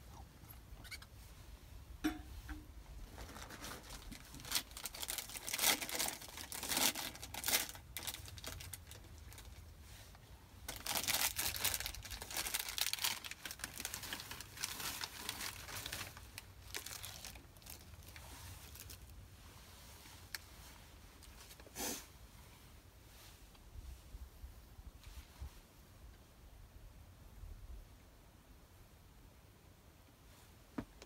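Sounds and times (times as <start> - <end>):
plastic packaging crinkling: 3.1 - 9.7, 10.7 - 19.1.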